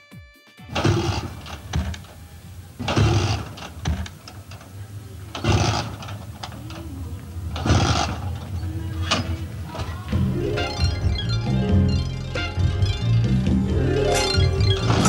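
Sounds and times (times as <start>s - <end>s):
scooter engine bursts: 0.7s - 13.0s
low mechanical hum: 0.7s - 15.0s.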